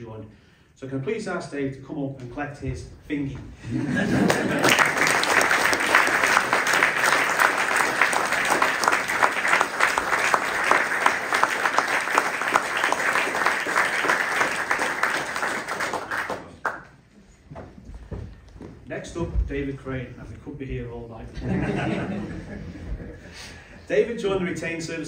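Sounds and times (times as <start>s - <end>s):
audience applauding: 4.0s - 17.0s.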